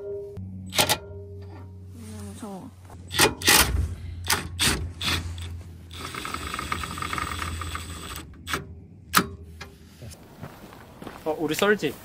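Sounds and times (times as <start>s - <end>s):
small motor rattling: 3.1s - 8.6s.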